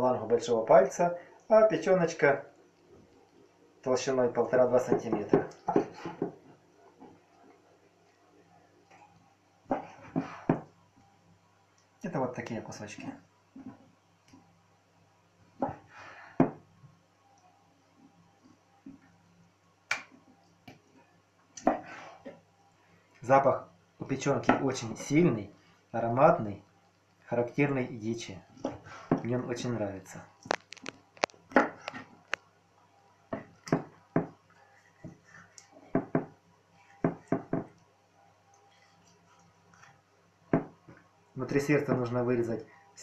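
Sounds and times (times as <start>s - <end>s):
knife knocking on cutting board: 4.9s - 6.4s.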